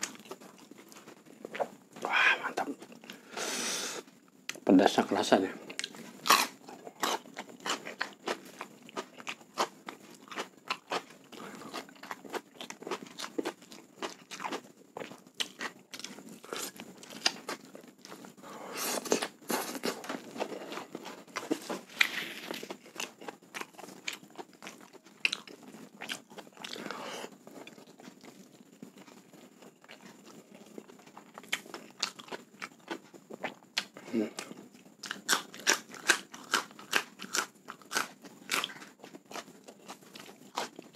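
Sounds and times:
man chewing crunchy food: 0.0 - 40.9.

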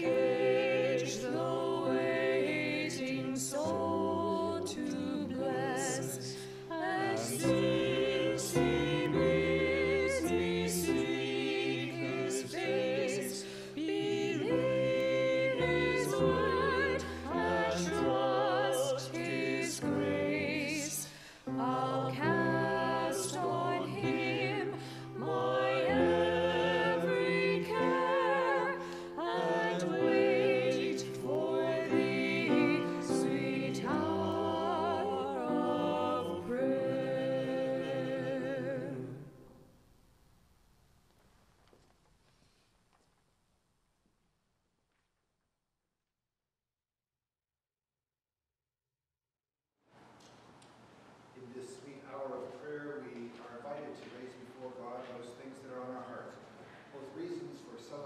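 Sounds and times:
church choir singing: 0.0 - 39.6.

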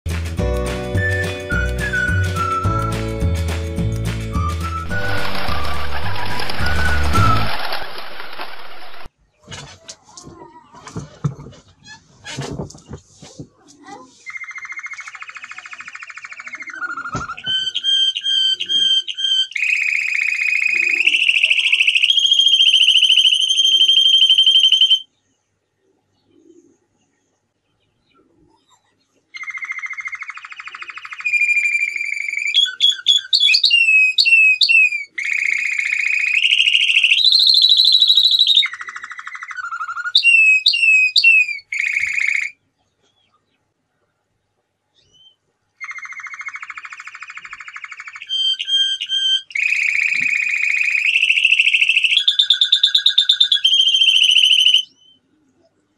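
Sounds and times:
canary singing trills: 14.3 - 25.0, 29.4 - 42.5, 45.0 - 55.4.

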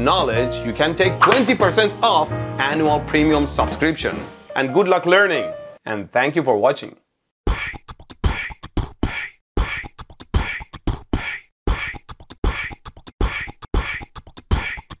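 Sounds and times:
beatbox percussion loop: 7.5 - 15.0.

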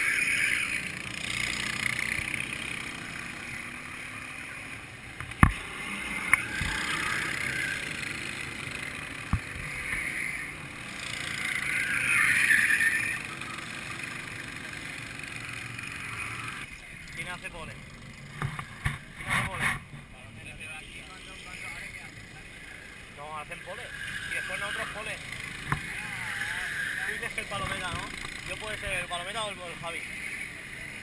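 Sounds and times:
go-kart engines buzzing: 0.0 - 31.0.

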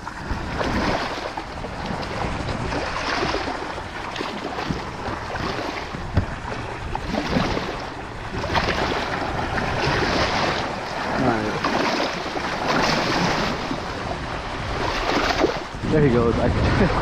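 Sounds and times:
water sloshing around legs: 0.0 - 15.8
wind buffeting microphone: 0.0 - 17.0.

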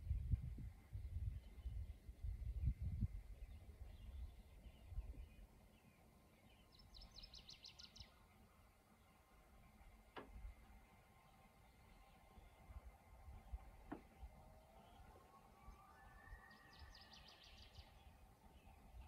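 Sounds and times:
low rumble on microphone: 0.0 - 5.5
songbird trill: 1.2 - 19.0.

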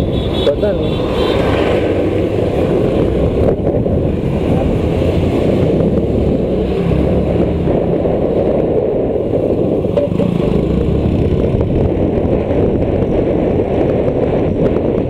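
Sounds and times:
wind rush over microphone: 0.0 - 15.0
scooter engine: 9.0 - 12.3.

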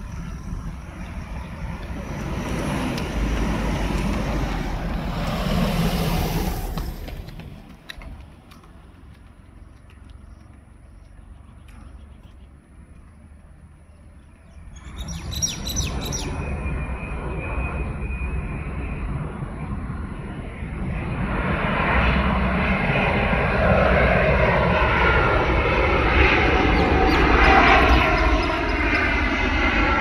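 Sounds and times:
jet engine roar: 0.0 - 30.0
bird chirping: 13.8 - 16.7, 26.7 - 29.2.

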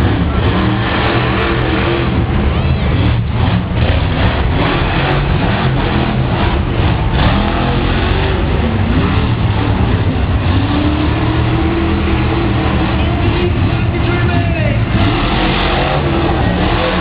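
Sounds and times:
monster truck engines revving: 0.0 - 17.0.

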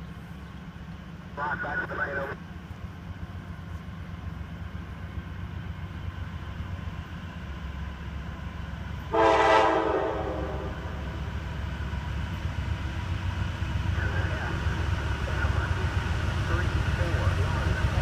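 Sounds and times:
train rumbling: 0.0 - 18.0
locomotive air horn blast: 9.1 - 11.0.

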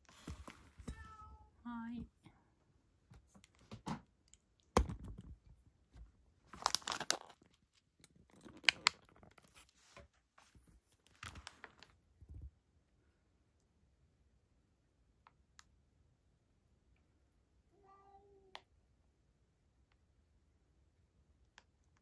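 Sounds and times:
wrapper crinkling: 6.5 - 7.7, 8.3 - 9.7.

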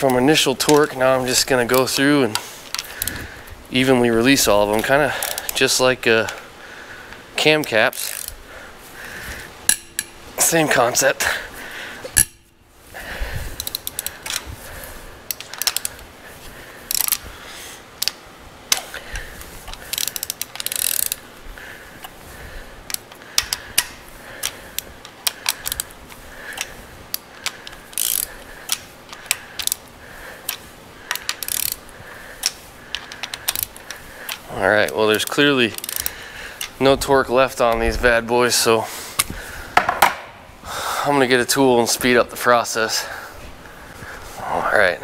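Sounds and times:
hand ratchet clicking: 4.5 - 6.4, 7.4 - 8.4, 9.7 - 10.2, 13.5 - 14.5, 15.2 - 16.0, 16.8 - 17.2, 18.0 - 21.2, 22.9 - 36.8.

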